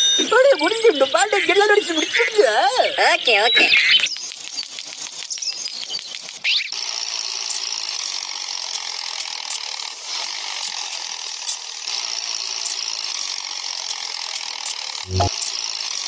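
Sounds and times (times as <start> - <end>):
toy motor and gears whirring: 3.7 - 16.0.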